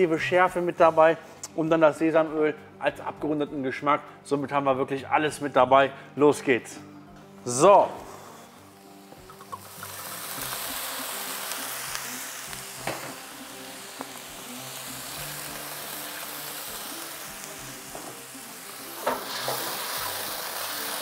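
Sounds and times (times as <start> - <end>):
vegetables sizzling in a wok: 8.0 - 21.0
liquid poured into hot wok: 9.1 - 17.9, 18.9 - 21.0.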